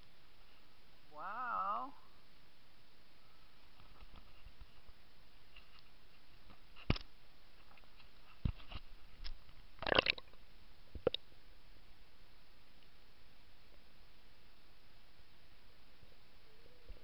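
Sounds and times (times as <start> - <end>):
water splashing and gurgling: 9.8 - 10.4.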